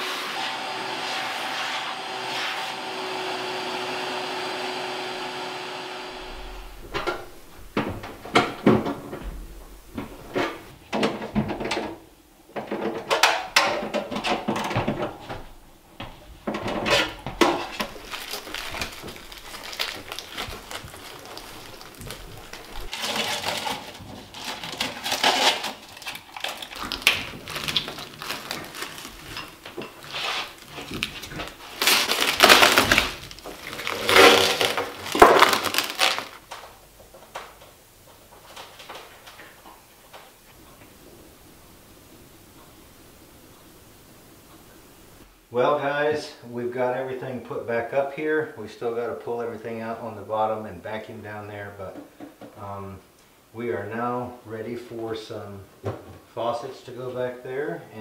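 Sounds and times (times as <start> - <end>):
shop vacuum running: 0.0 - 9.0
plastic rustling: 6.2 - 12.0, 12.6 - 45.3
knocks and clunks: 6.2 - 18.0.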